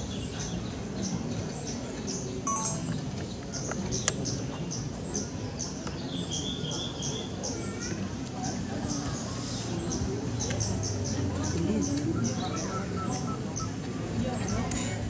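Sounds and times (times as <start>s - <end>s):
low background murmur: 0.0s - 15.0s
bird chirping: 2.5s - 3.0s.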